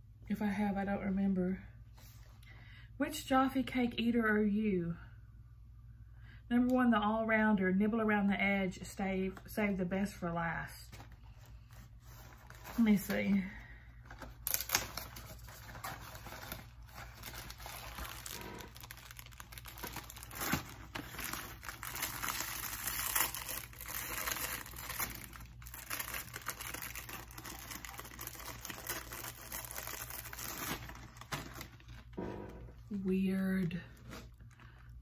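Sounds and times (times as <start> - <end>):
snack packet crinkling: 14.2 - 32.1.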